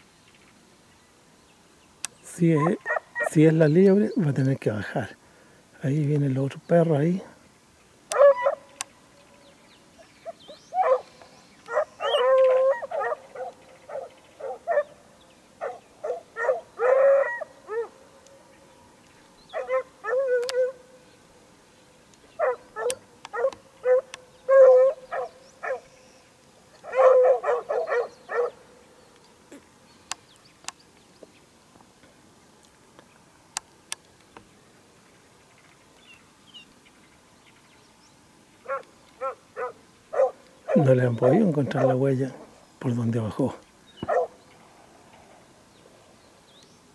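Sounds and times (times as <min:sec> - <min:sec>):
hunting dogs baying: 0:02.5 - 0:03.5, 0:08.1 - 0:08.8, 0:10.0 - 0:18.1, 0:19.5 - 0:20.9, 0:22.4 - 0:25.9, 0:26.8 - 0:28.8, 0:38.6 - 0:42.6, 0:44.0 - 0:44.4.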